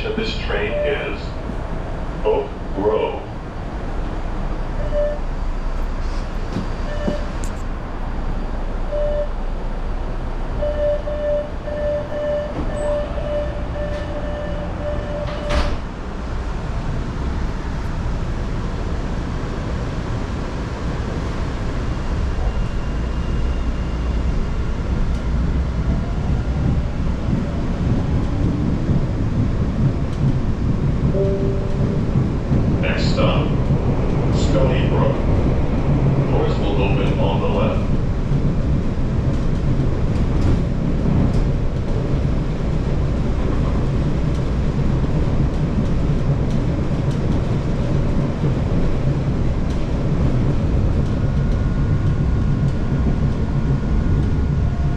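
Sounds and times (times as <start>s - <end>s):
subway train wheels rumbling: 0.0s - 54.9s
steady high tone: 31.2s - 33.3s.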